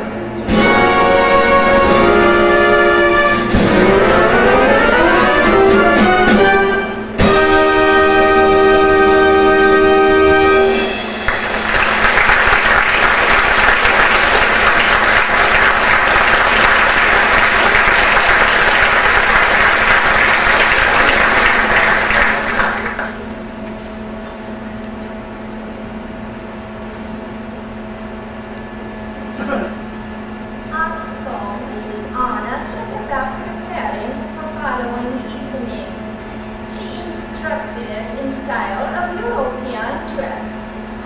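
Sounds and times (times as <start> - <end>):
orchestra holding final chord: 0.0 - 23.5
steady low hum: 0.0 - 41.0
audience applauding: 11.2 - 23.3.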